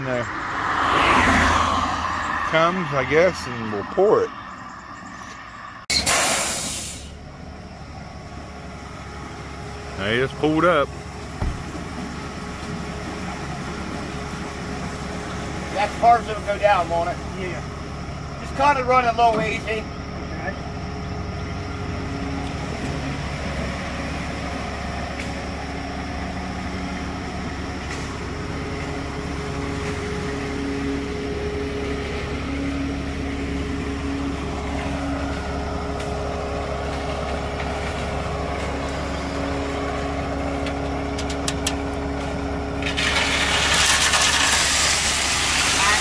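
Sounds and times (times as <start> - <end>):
truck engine running: 0.0 - 46.0
concrete sliding down a chute: 42.8 - 46.0.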